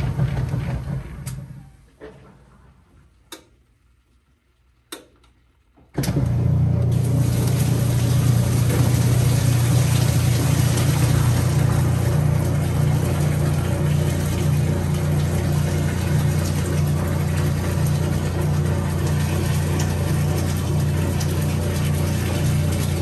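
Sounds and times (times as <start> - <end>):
drain pump humming: 0.0 - 3.4, 6.0 - 23.0
rushing water: 7.0 - 23.0.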